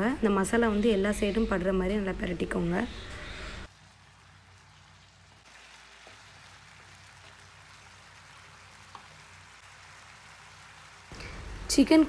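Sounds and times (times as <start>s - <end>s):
chicken sizzling in gravy: 3.7s - 11.4s.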